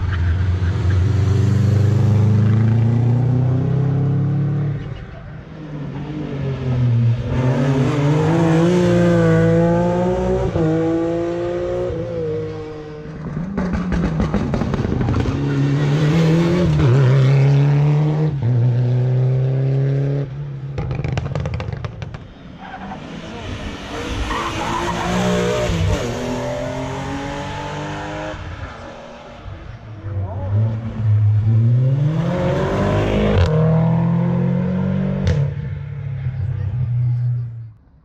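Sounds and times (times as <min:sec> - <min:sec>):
rally car engines revving: 0:00.0 - 0:38.0.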